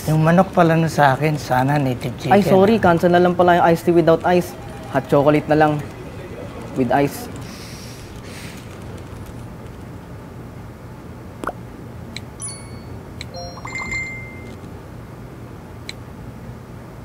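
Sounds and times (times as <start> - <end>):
short electronic chimes: 12.4 - 14.6.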